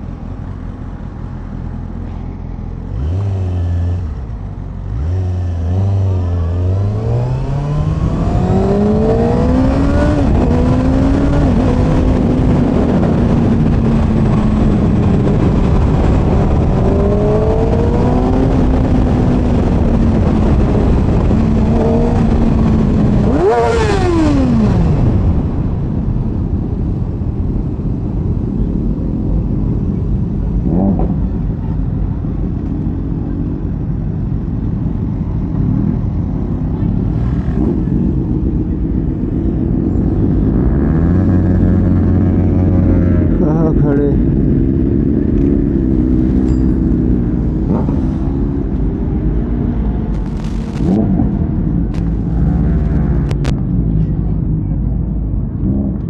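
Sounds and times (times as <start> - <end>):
motorcycle engine low rumble: 0.0 - 56.0.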